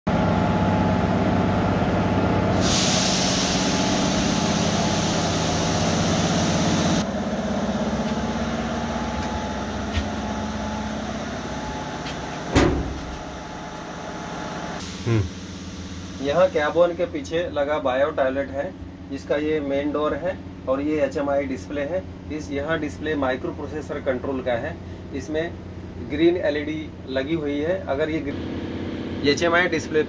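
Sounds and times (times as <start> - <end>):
electric locomotive hum: 0.1 - 16.2
air hissing: 2.5 - 7.0
sharp knock: 12.6 - 13.1.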